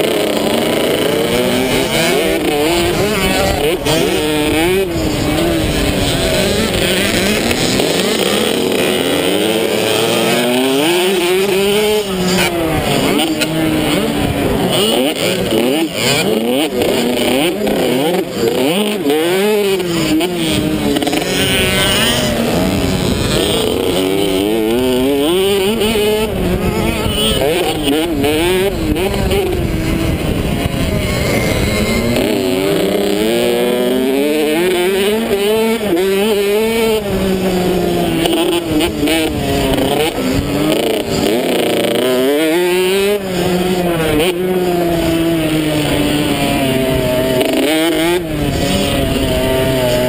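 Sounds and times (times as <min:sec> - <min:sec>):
two-stroke motorbike engine revving: 0:00.0 - 0:50.0
wind rumbling on microphone: 0:01.1 - 0:09.7, 0:20.3 - 0:34.6
wind rush: 0:22.2 - 0:33.2.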